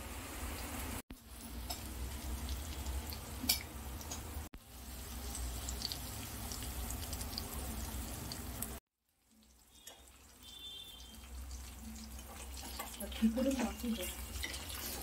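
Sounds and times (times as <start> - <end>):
fish sizzling in oil: 0.0 - 15.0.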